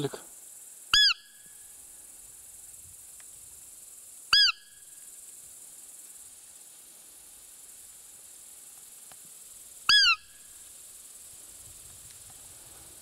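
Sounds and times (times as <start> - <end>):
insects hissing: 0.0 - 13.0
deer call squeak: 0.9 - 1.3, 4.3 - 4.7, 9.9 - 10.3.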